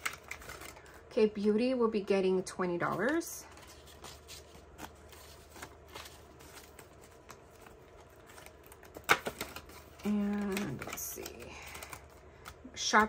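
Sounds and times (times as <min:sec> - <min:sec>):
banknotes rustling: 0:02.8 - 0:13.0.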